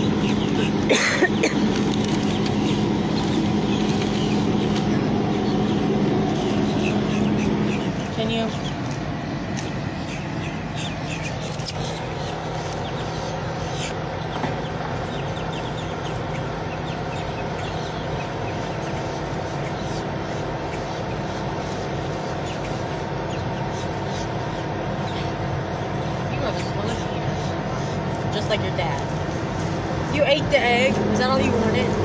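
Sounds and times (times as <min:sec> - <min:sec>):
hum of vehicle engines: 0:00.0 - 0:32.0.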